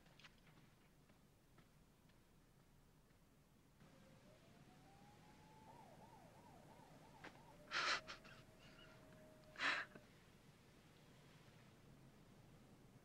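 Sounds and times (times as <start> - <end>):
faint high wavering tone: 3.8 - 10.1
sharp exhaled breaths: 7.7 - 9.0.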